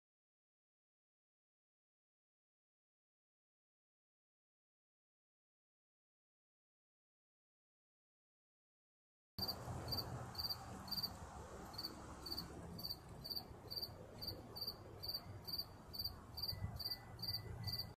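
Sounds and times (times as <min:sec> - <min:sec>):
cricket chirping: 0:09.4 - 0:18.0.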